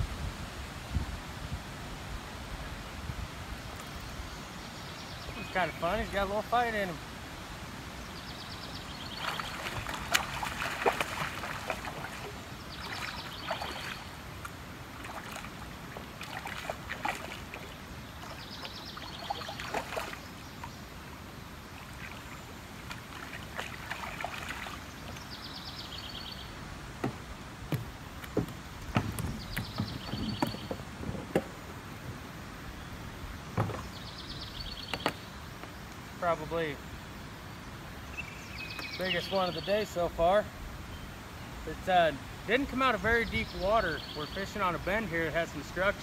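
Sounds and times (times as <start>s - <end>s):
water sloshing and splashing: 8.9s - 25.4s.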